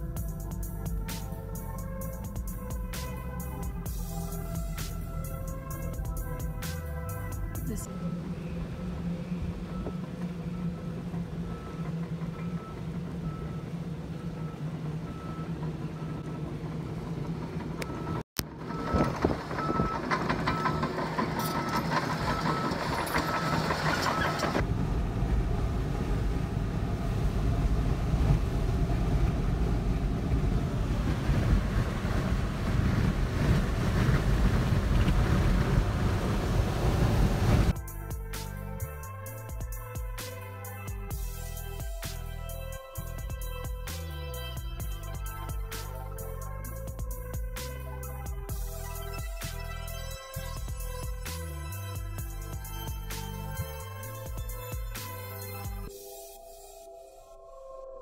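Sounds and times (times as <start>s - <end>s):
car driving on road rumble: 0.0s - 54.5s
car engine hum: 0.0s - 55.9s
wind rushing over car: 24.6s - 37.8s.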